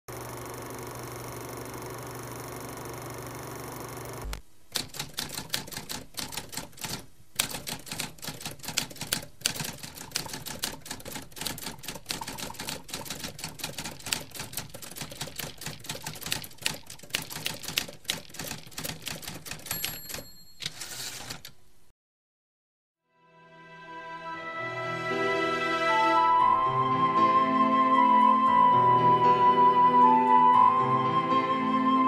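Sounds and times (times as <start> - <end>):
typewriter keys clacking: 4.7 - 21.6.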